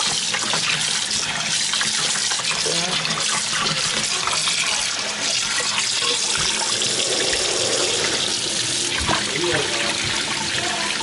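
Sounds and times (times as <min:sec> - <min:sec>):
tap running into steel sink: 0:08.9 - 0:10.4.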